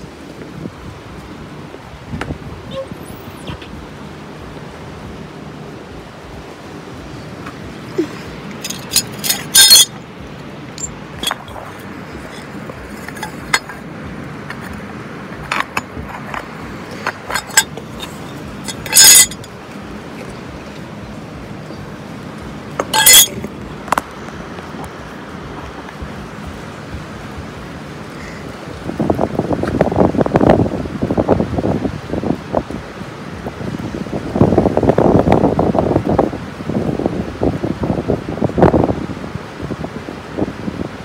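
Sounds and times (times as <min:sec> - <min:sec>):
steady background noise: 0:00.0 - 0:41.0
objects clinking and knocking: 0:08.6 - 0:10.0, 0:10.8 - 0:13.8, 0:15.4 - 0:19.5, 0:22.8 - 0:24.0.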